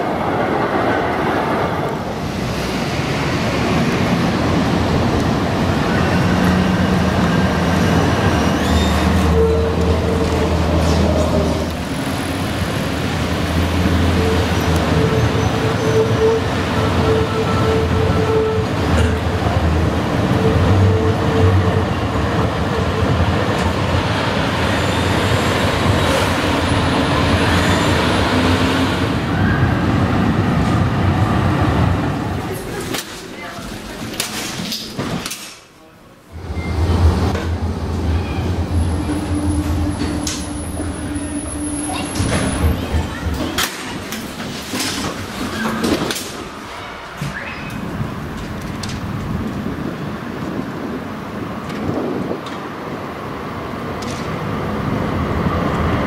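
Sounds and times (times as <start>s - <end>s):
tram rolling with low hum: 0.0s - 56.0s
high wheel squeal: 8.4s - 11.2s, 27.0s - 28.2s, 36.4s - 37.0s.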